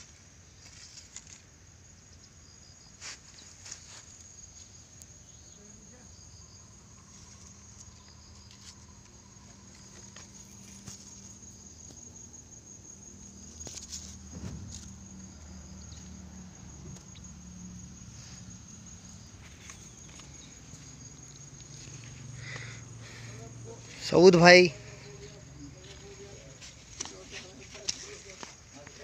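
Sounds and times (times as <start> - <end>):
crickets trilling: 0.0 - 29.0
knocks and rustles: 13.2 - 17.4.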